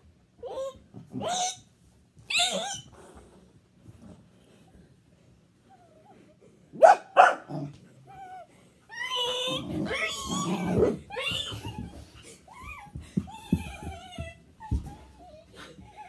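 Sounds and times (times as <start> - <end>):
dog whining and yipping: 2.3 - 2.9, 8.1 - 16.0
dog barking: 6.8 - 7.6
dog growling: 9.2 - 11.2.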